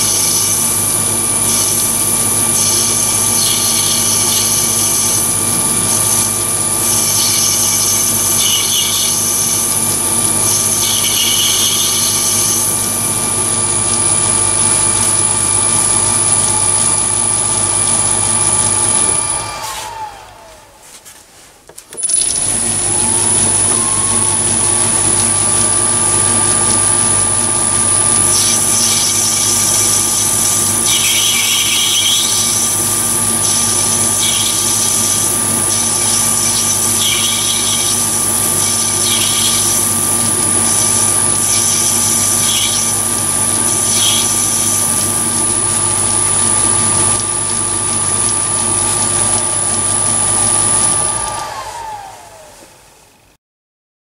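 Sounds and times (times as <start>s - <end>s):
lathe motor whine: 0.0s - 21.1s, 21.9s - 53.3s
harsh high-pitched noise: 1.4s - 20.2s, 23.2s - 47.4s.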